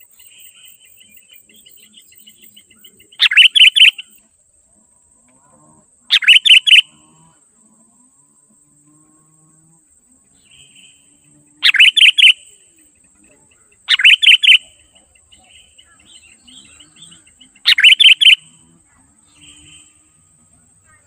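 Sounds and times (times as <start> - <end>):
bird calling loud phrases: 0.0 - 4.2, 6.1 - 6.9, 10.4 - 21.0
soft bird chirps: 0.0 - 4.2, 6.1 - 7.0, 10.3 - 21.0.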